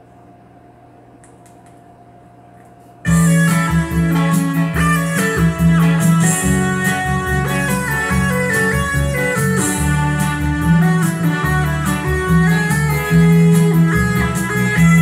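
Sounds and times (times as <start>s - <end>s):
electric guitar and bass song: 3.1s - 15.0s.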